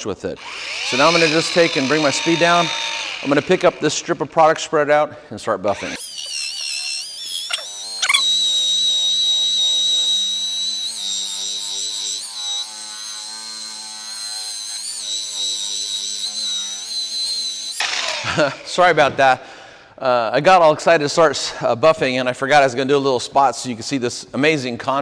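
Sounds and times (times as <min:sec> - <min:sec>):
rotary polisher motor whine: 0:00.4 - 0:04.3, 0:05.7 - 0:18.6.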